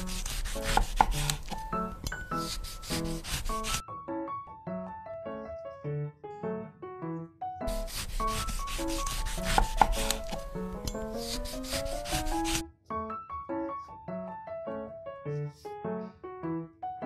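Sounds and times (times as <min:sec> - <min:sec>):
cutout scraping over paper: 0:00.0 - 0:03.8, 0:07.7 - 0:12.6
light piano music: 0:00.0 - 0:17.0.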